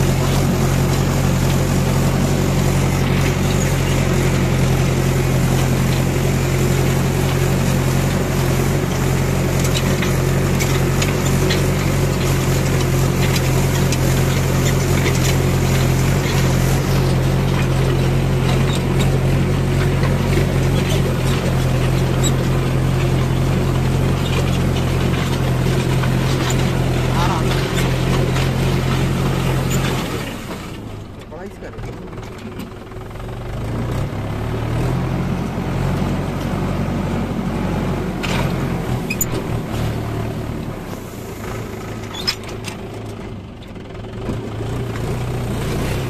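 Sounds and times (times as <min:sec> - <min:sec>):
tractor diesel engine under load: 0:00.0 - 0:46.0
harrow clicks and rattles: 0:00.1 - 0:32.8.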